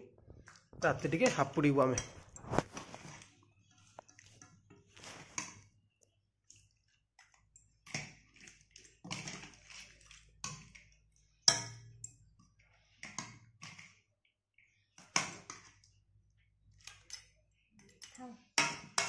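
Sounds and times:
steel spoon clinking on pot: 0:11.4 - 0:12.2.

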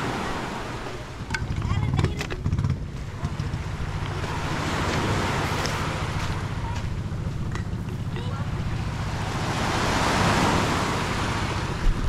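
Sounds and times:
waves washing over pebbles: 0:00.0 - 0:12.0
wind rumble on microphone: 0:00.0 - 0:12.0.

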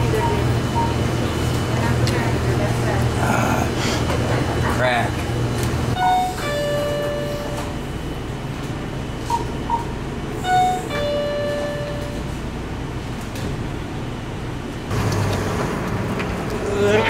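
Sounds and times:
short beeps: 0:06.0 - 0:07.8, 0:09.3 - 0:12.3
two-note entry chime: 0:06.0 - 0:07.8, 0:10.4 - 0:12.3.

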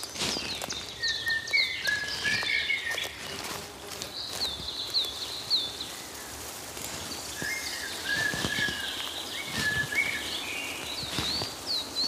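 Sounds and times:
lower whistled birdsong: 0:00.0 - 0:03.3, 0:04.1 - 0:12.0
birds chirping: 0:00.0 - 0:12.0
outdoor hiss: 0:04.2 - 0:12.0.

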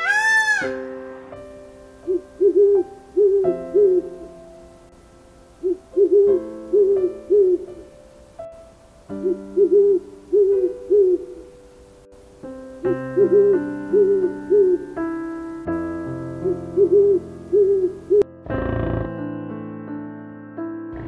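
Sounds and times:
owl hooting: 0:00.0 - 0:00.8, 0:02.0 - 0:04.3, 0:05.6 - 0:07.8, 0:09.2 - 0:11.6, 0:13.2 - 0:15.0, 0:16.4 - 0:18.2
soft piano music: 0:00.0 - 0:21.0.

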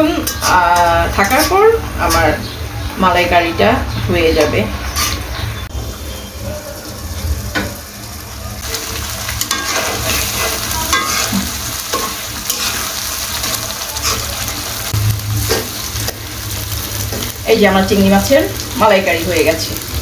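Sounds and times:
spatula scraping a metal pan: 0:04.4 - 0:05.3
curry sauce sizzling in a pan: 0:05.9 - 0:20.0
low rumble: 0:14.9 - 0:16.9.

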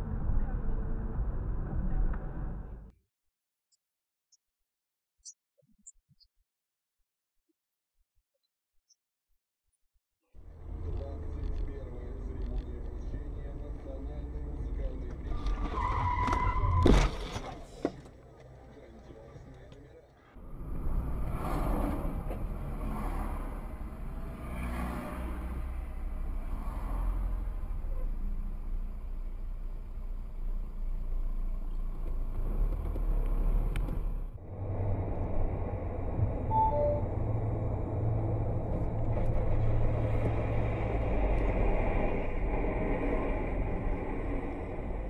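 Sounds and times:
car engine and tyre rumble: 0:00.0 - 0:02.9, 0:10.4 - 0:45.0.

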